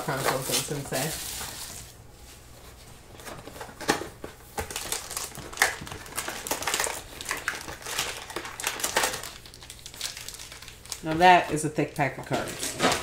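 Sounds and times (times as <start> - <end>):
foil wrappers crinkling: 0.0 - 2.0, 3.2 - 13.0
card packs torn open: 4.6 - 11.3, 12.2 - 13.0.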